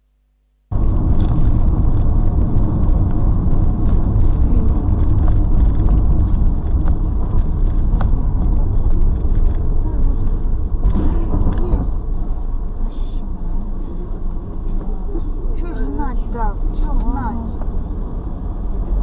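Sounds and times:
car driving rumble: 0.7 - 19.0.

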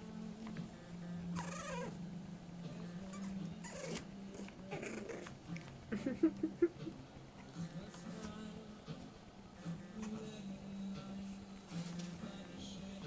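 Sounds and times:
puppies whining and squealing: 1.3 - 2.0, 3.0 - 5.4.

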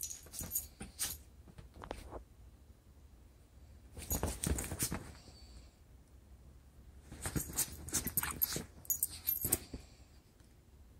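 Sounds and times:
scuffling and rustling sheets: 4.0 - 5.2.

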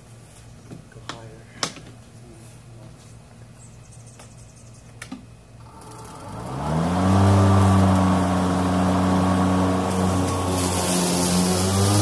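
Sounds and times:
electric lawn mower whirring: 5.6 - 12.0.

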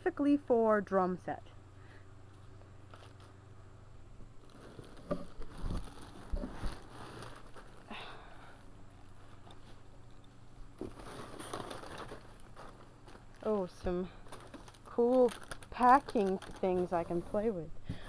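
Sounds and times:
plastic packing crinkling: 4.4 - 8.0, 10.8 - 17.4.

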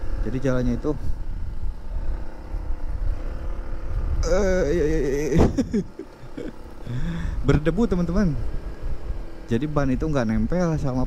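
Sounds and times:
motorcycle engine rumble: 0.0 - 11.0
wind on microphone: 1.0 - 6.0
person's voice: 4.2 - 5.9.

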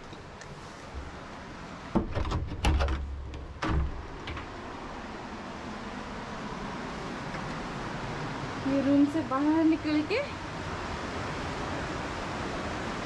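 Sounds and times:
steady rushing background noise: 0.0 - 13.0
door knocks and clicks: 1.9 - 4.6.

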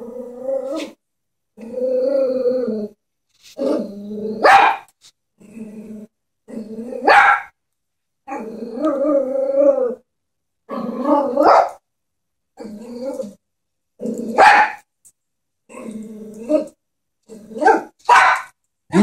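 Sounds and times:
small dog growling: 0.0 - 1.0, 1.6 - 3.0, 3.6 - 4.6, 5.4 - 7.1, 8.3 - 10.0, 10.7 - 11.4, 12.6 - 13.4, 14.0 - 14.4, 15.7 - 17.9
small dog barking: 4.4 - 4.9, 7.0 - 7.5, 11.4 - 11.8, 14.3 - 14.8, 17.6 - 18.6.

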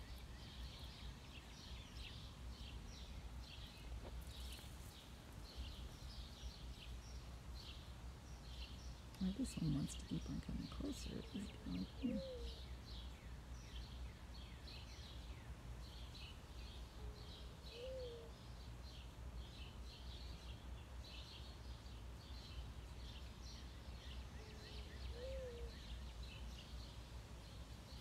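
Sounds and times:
small birds chirping: 0.0 - 28.0
low steady rumble: 9.1 - 12.2.

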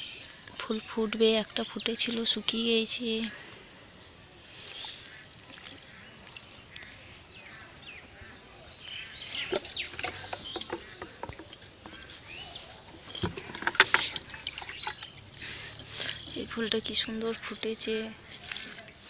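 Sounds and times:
birds chirping: 0.0 - 19.0
sharp clicks and knocks: 9.5 - 15.1.

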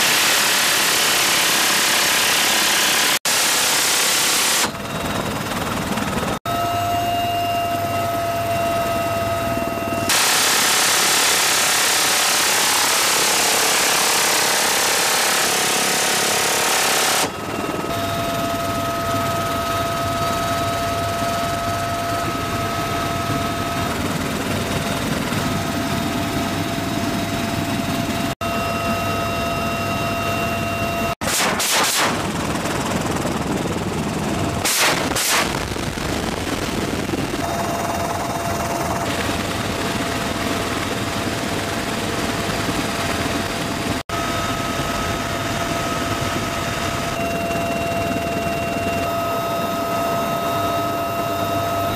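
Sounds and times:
helicopter cabin noise with whine: 0.0 - 31.2, 31.9 - 51.9
machine gun bursts: 10.1 - 17.3, 31.2 - 32.4, 34.6 - 35.7.

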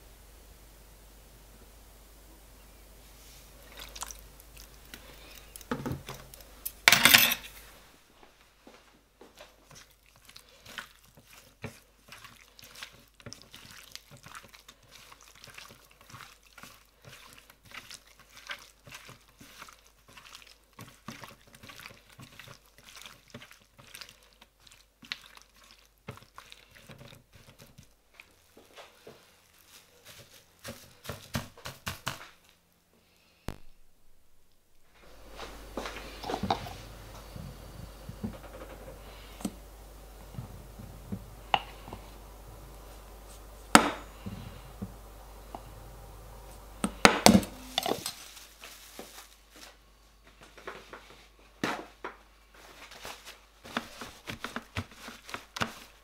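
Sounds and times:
raw chicken squelching on tray: 9.6 - 32.4
cling film crinkling: 47.5 - 49.8.

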